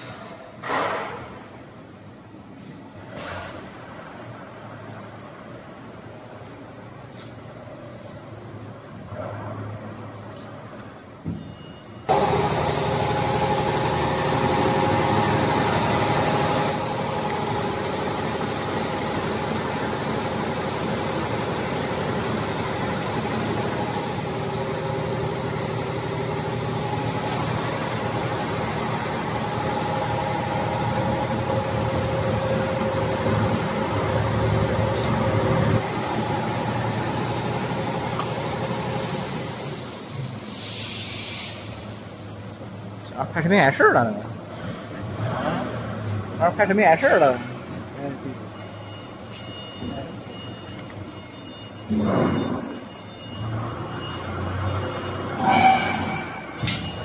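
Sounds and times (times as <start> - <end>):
machine motors humming and whining: 12.1 - 40.2, 47.6 - 57.0.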